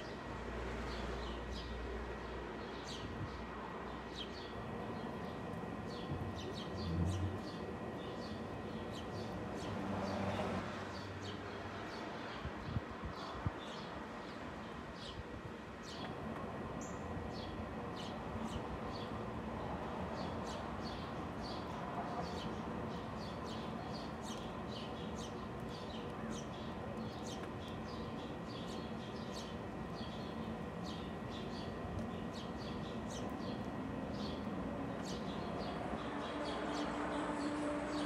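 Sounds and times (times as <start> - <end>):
small songbirds chirping: 20.1 - 38.0.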